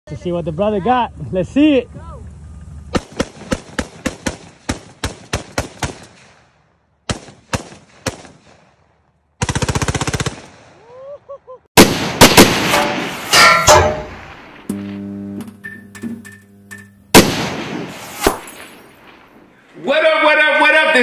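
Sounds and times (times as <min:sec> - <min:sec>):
rifle gunfire: 0:02.9 - 0:06.4, 0:07.1 - 0:08.8, 0:11.8 - 0:13.4, 0:17.1 - 0:19.4.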